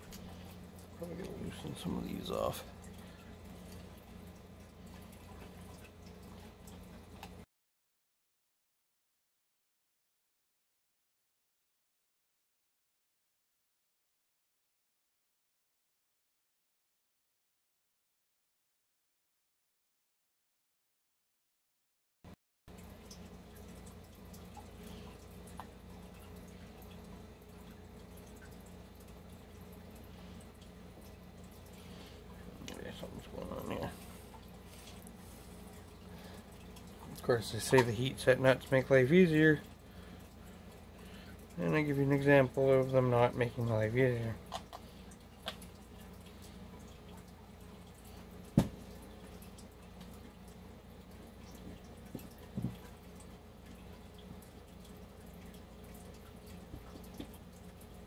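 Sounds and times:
steady low hum: 0.0 - 7.4, 22.7 - 58.0.

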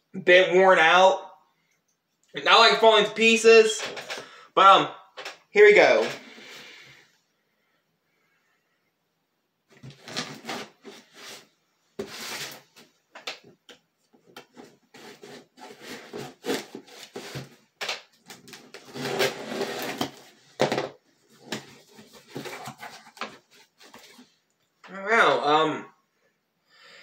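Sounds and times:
packaging rustling and scraping: 9.7 - 13.0, 14.4 - 24.4.

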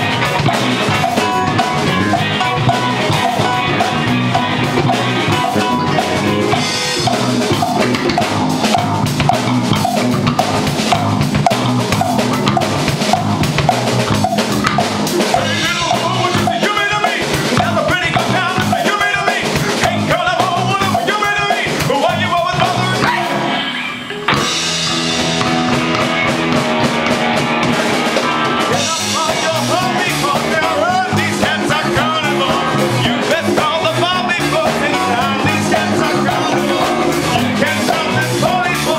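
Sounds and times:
congas: 0.0 - 22.0
drum kit: 0.0 - 38.9
guitar: 0.0 - 38.9
keyboard: 0.0 - 38.9.

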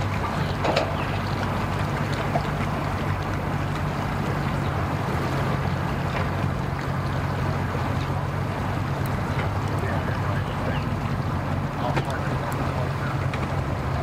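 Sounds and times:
outboard motor idling: 0.0 - 14.0
outdoor noise: 0.0 - 14.0.

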